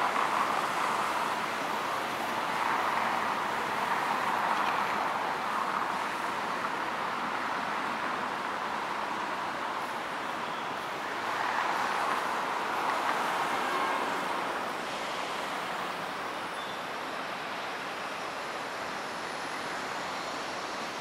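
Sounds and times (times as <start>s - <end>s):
city road traffic hiss: 0.0s - 21.0s.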